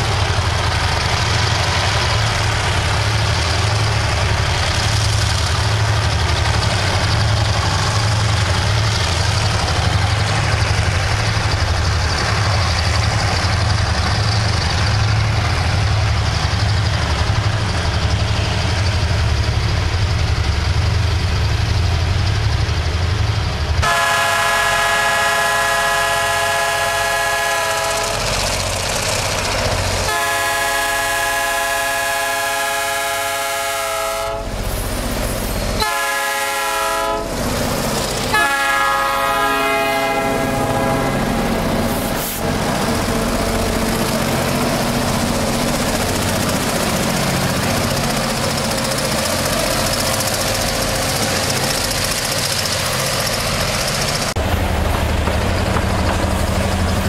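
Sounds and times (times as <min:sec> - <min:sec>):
train rumbling past on rails: 0:00.0 - 0:57.0
locomotive air horn blasts: 0:23.8 - 0:28.2, 0:30.1 - 0:34.5, 0:35.8 - 0:37.3, 0:38.3 - 0:41.3.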